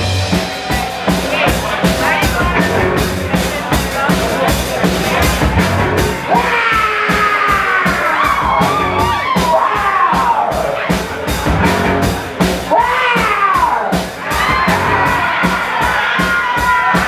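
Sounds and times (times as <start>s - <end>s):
drum kit fast beat: 0.0s - 17.0s
electric bass: 0.0s - 17.0s.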